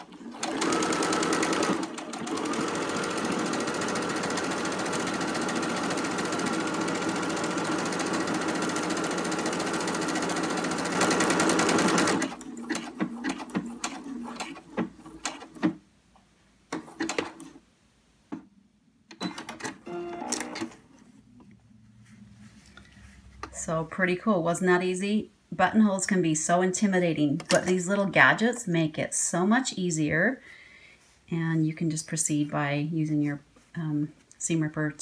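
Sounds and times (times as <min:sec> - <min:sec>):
sewing machine stitching: 0:00.0 - 0:15.8, 0:16.7 - 0:17.6, 0:19.1 - 0:20.8.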